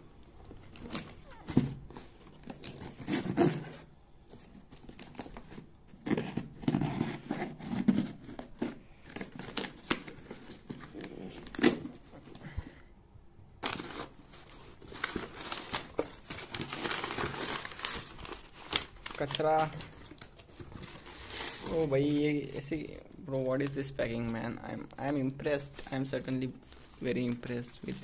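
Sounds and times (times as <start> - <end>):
paper packing rustling: 0.4 - 12.8, 13.6 - 28.0
knife cutting cardboard box: 6.0 - 8.8.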